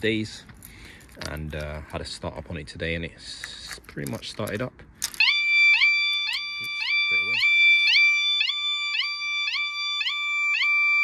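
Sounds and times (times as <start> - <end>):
motorcycle alarm beeping: 5.2 - 11.0.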